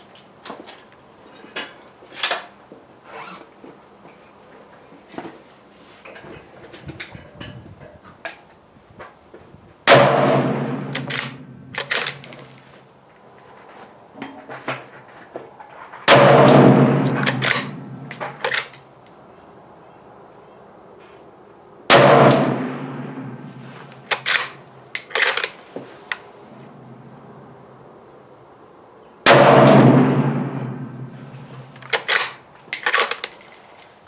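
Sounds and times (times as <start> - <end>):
rifle shots with echo: 9.9 - 12.5, 16.1 - 18.7, 21.9 - 23.5, 29.3 - 31.2
rifle bolt metallic clicks: 10.8 - 12.6, 17.1 - 18.8, 23.9 - 26.2, 31.8 - 33.5.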